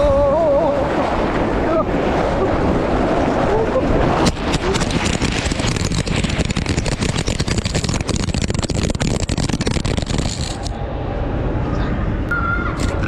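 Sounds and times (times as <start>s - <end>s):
rushing rumble of sliding ride: 0.0s - 13.0s
wind buffeting microphone: 0.0s - 13.0s
snow scraping and crackling: 0.7s - 10.8s.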